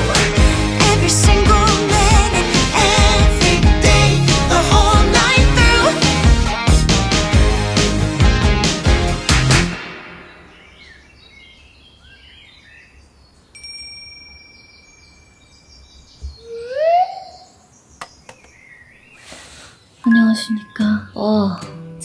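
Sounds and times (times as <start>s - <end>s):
music: 0.0s - 10.6s, 21.4s - 22.0s
bird chirps and calls: 14.6s - 21.6s.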